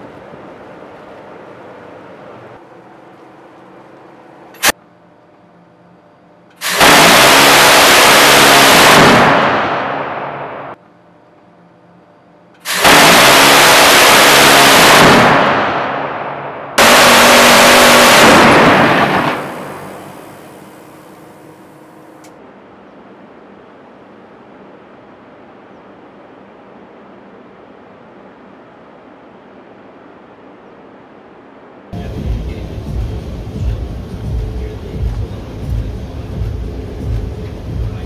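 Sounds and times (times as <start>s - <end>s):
gatling cannon firing bursts: 6.6s - 10.8s, 12.6s - 21.1s.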